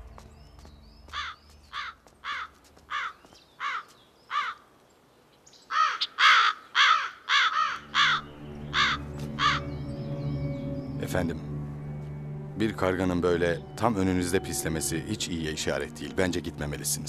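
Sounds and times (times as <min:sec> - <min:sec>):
crow cawing: 0:01.1 - 0:04.7, 0:05.7 - 0:09.7.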